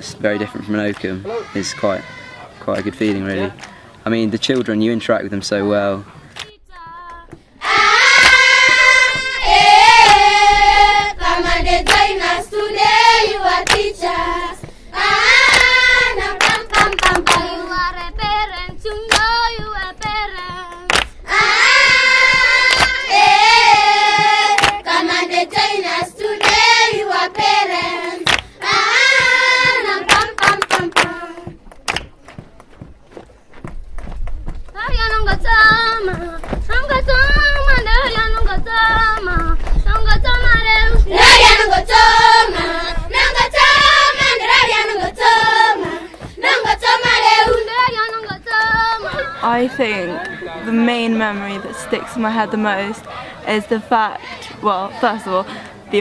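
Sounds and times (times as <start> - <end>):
group singing: 1.3 - 2.6, 7.6 - 20.6, 21.3 - 31.6, 40.7 - 55.6
hand claps: 2.7 - 3.8, 6.3 - 7.4, 8.1 - 9.3, 10.0 - 10.2, 11.8 - 12.1, 13.6 - 13.9, 14.6 - 15.8, 16.4 - 17.6, 18.6 - 24.9, 26.4 - 27.0, 27.8 - 39.8.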